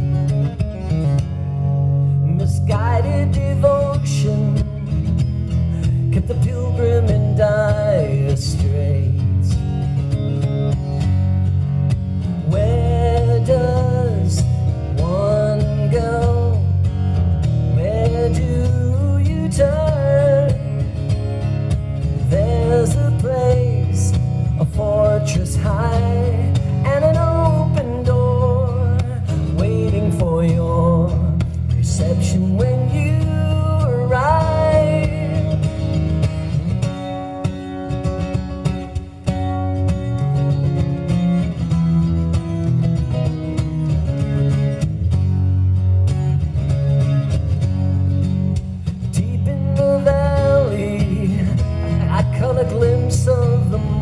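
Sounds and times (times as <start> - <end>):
acoustic guitar strumming: 0.0 - 54.0
man singing: 2.2 - 5.0, 5.6 - 9.6, 12.3 - 16.9, 17.6 - 21.0, 22.0 - 35.8, 48.9 - 54.0.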